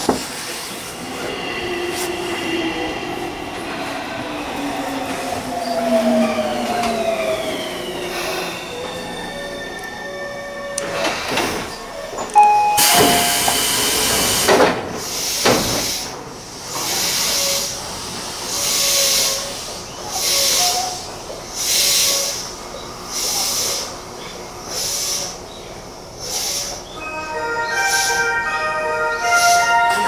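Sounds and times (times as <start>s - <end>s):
train compressed air hiss: 12.8s - 25.5s, 26.2s - 27.0s.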